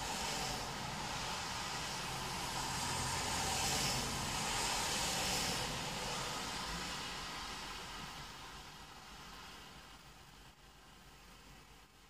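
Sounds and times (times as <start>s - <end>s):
tyres hissing on wet road: 0.0s - 12.0s.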